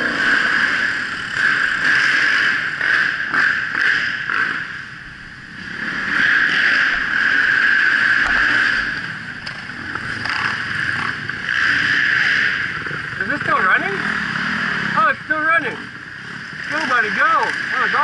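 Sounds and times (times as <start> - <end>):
motocross bike engine: 0.0 - 18.0.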